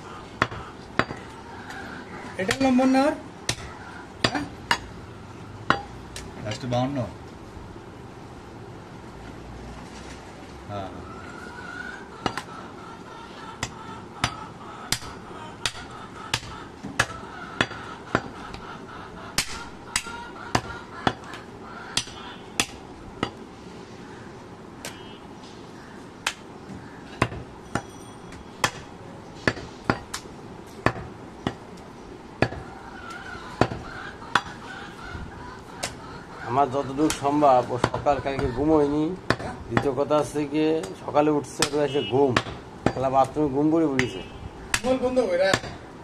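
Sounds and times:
cleaver chopping on wooden block: 22.0 - 23.4, 30.8 - 31.6, 32.4 - 32.6, 39.3 - 39.9, 42.4 - 43.0, 44.0 - 45.8.

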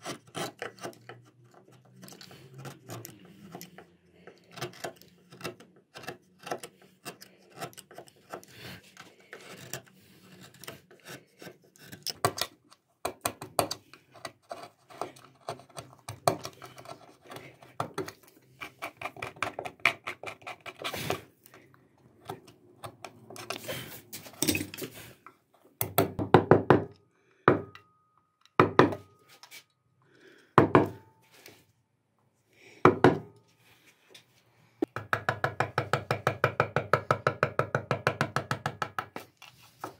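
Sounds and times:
chisel scraping cuts into wood: 0.0 - 1.2.

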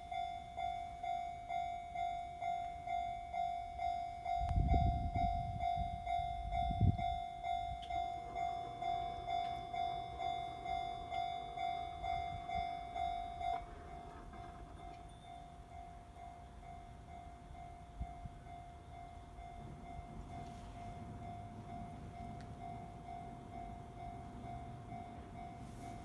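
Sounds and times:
level crossing warning bell: 0.0 - 26.0.

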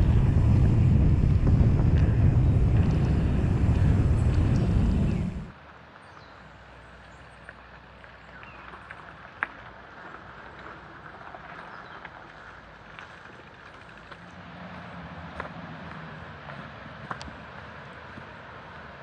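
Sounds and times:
bike clicks: 0.0 - 5.5, 8.7 - 14.4
bicycle rolling on gravel: 0.0 - 19.0.

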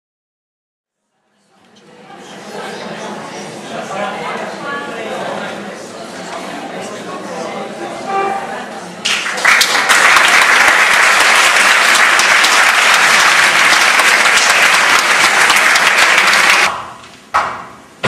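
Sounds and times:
audience applauding: 9.0 - 16.8.

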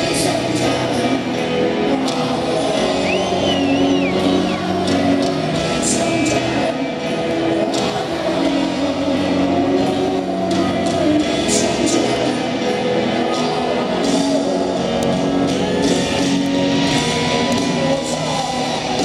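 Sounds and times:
live rock ballad: 0.0 - 19.0
person singing: 0.0 - 19.0
piano: 0.0 - 19.0.

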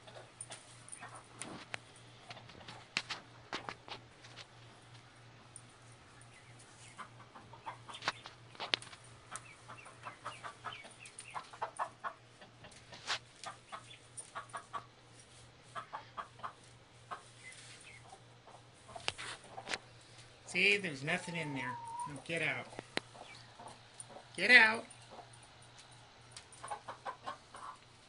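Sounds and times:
hen clucking in rapid runs: 6.4 - 8.5, 9.2 - 15.0, 15.6 - 19.8, 20.5 - 25.3, 26.6 - 27.9
hen low warning clucks: 6.4 - 8.5, 9.2 - 15.0, 15.6 - 19.8, 20.5 - 24.4, 26.6 - 28.0.

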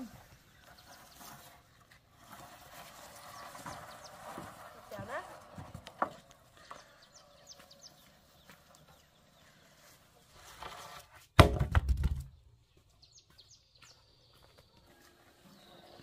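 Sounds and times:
thuds and knocks: 11.4 - 12.3
faint high bird chirps: 12.8 - 16.0.

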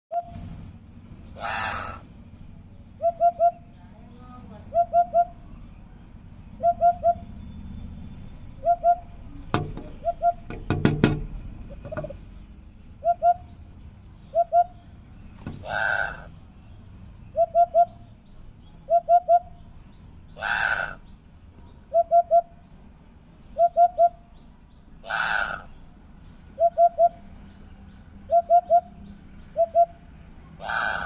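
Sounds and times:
bird calling low hoots: 1.4 - 2.1, 3.0 - 3.7, 4.7 - 5.5, 6.6 - 7.4, 8.6 - 9.2, 9.9 - 10.5, 13.0 - 13.6, 14.2 - 14.8, 15.5 - 16.3, 17.3 - 18.0, 18.8 - 19.6, 20.4 - 21.1, 21.9 - 22.6, 23.5 - 24.3, 25.0 - 25.8, 26.6 - 27.3, 28.2 - 30.0, 30.6 - 31.0
sharp knocks: 9.5 - 12.2.

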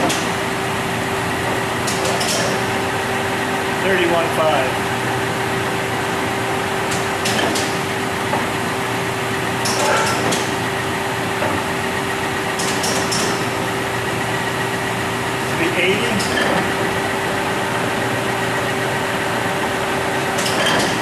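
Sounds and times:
lathe control clicks and clunks: 0.0 - 0.5, 1.2 - 2.8, 6.8 - 8.7, 9.6 - 11.8, 12.4 - 13.8, 15.9 - 17.5, 20.1 - 21.0
machine hum: 0.0 - 21.0.

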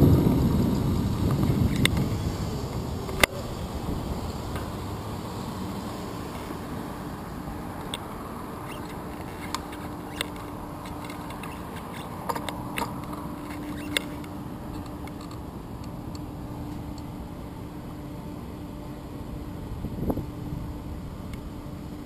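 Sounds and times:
bicycle tyre rumble on asphalt: 0.0 - 22.0
faint hum: 0.0 - 22.0
sharp clicks and rattles: 1.2 - 3.4, 7.7 - 17.1.

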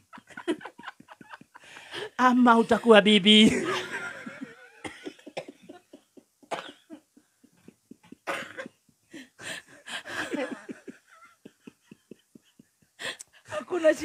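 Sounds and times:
man laughing hard: 0.0 - 1.9, 9.4 - 12.9.

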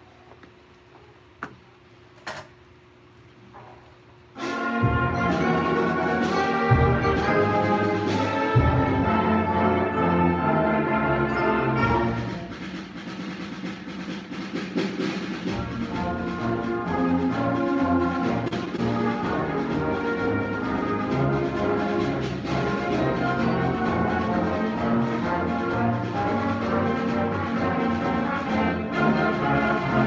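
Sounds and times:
brass chords: 4.4 - 13.0, 15.0 - 30.0
concert band playing: 4.4 - 30.0.

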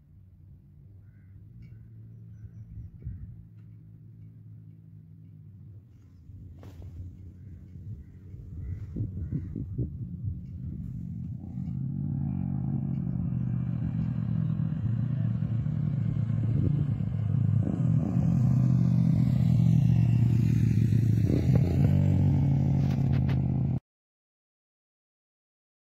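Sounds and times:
motorcycle passing by: 5.9 - 23.8.

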